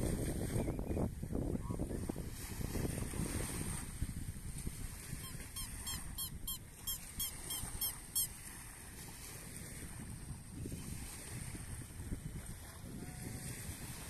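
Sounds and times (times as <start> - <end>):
light surf: 0.0 - 14.0
wind buffeting microphone: 0.0 - 14.0
short high squeaky calls: 5.2 - 8.4.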